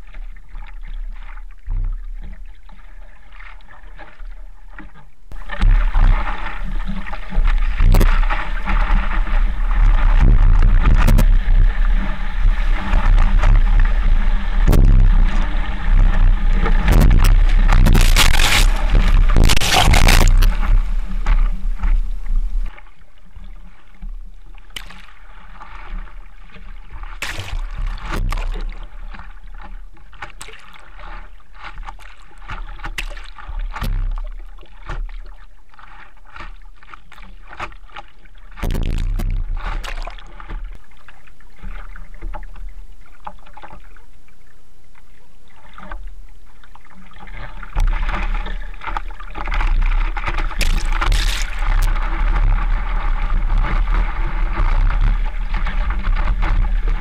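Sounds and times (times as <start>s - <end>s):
low rumble of water: 0.0s - 57.0s
water splashing from paddling: 0.0s - 57.0s.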